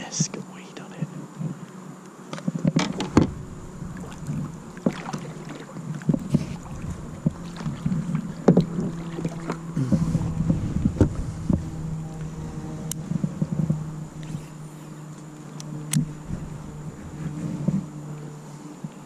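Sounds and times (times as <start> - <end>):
low steady hum: 0.0 - 19.0
knocks and taps on kayak hull: 2.6 - 3.4.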